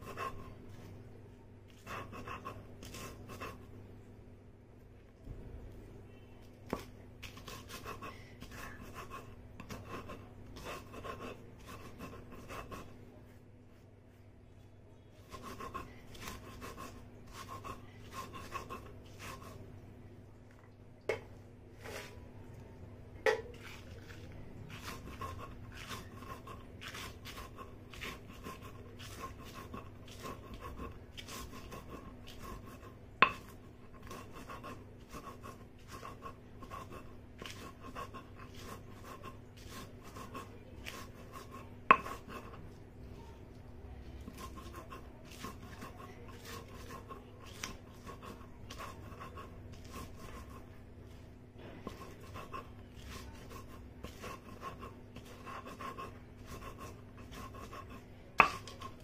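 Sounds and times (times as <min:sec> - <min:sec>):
stone roller grinding paste: 0:06.7 - 0:13.0, 0:15.2 - 0:19.6, 0:23.3 - 0:42.8, 0:44.2 - 0:59.0.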